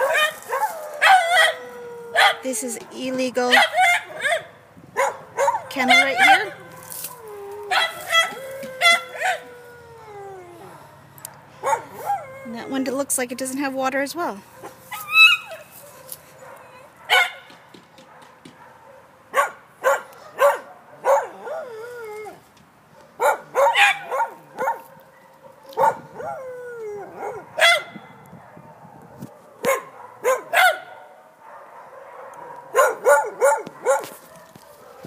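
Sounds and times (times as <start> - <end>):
dog whining yelps: 0.0 - 2.5, 3.5 - 10.9, 11.6 - 12.8, 14.6 - 17.4, 19.4 - 22.4, 23.2 - 28.2, 32.4 - 35.0
dogs barking: 0.0 - 9.6, 10.6 - 12.4, 14.5 - 21.7, 22.9 - 26.4, 27.0 - 35.0.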